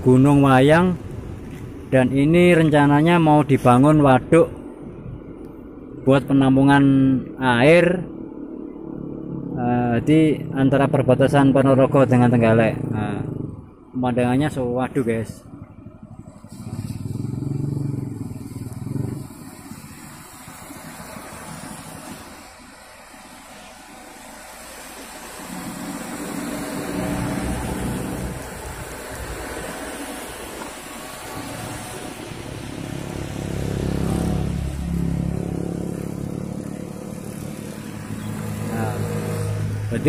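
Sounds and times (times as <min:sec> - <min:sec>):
vehicle engine running: 0:15.6 - 0:40.0.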